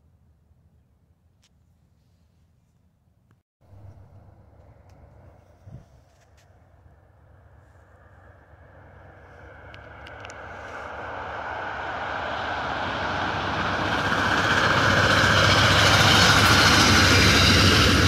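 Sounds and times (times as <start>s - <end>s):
low engine hum: 3.6s - 14.9s
train wheels rumbling on rail: 8.0s - 18.0s.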